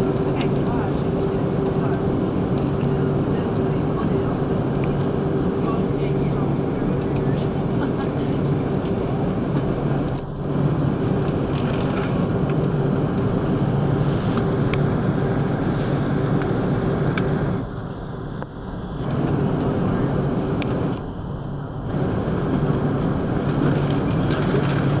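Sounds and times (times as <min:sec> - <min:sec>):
jet engines humming: 0:00.0 - 0:25.0
rush of air: 0:13.2 - 0:18.4.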